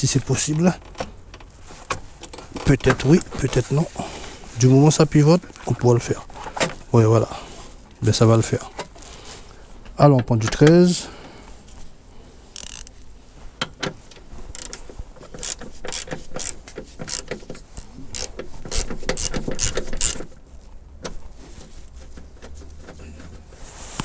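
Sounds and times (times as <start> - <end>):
ratchet wrench clicking: 12.6 - 12.9, 14.5 - 14.8, 15.4 - 20.3.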